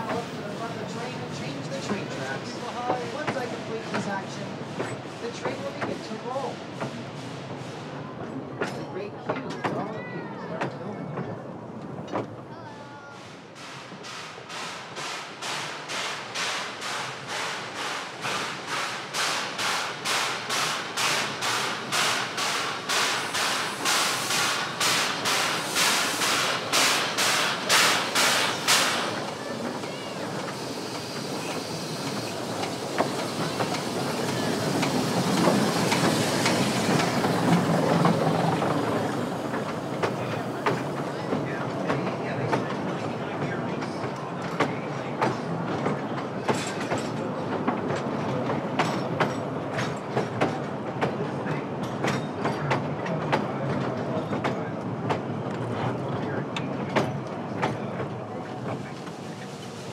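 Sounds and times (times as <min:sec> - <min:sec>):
train rumbling by: 0:00.0 - 0:59.9
steam locomotive exhaust beats: 0:13.0 - 0:43.2.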